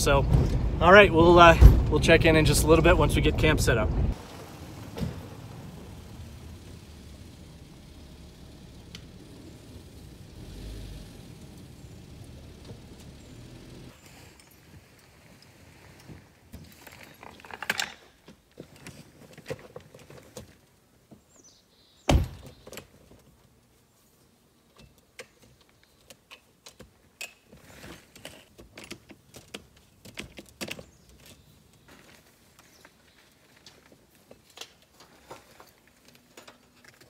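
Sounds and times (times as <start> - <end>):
loud sharp thump: 1.5 - 2.1
tent latches clicking and rattling: 15.4 - 20.7, 24.7 - 31.9.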